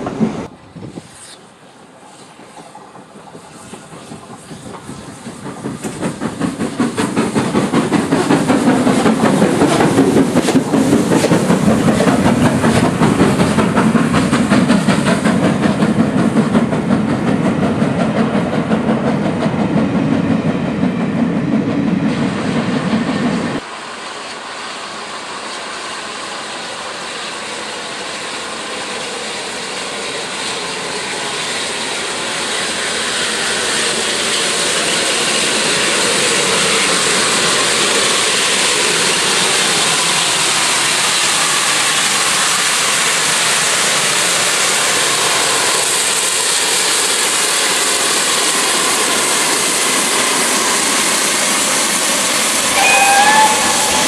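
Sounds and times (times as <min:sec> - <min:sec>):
train rushing noise: 0:00.0 - 0:54.0
whistle-like tone: 0:52.7 - 0:54.0.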